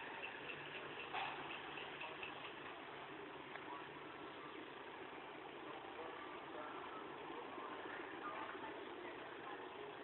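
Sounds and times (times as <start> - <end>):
faint rapid ticking: 0.0 - 5.6
low hum of moving train: 0.0 - 10.0.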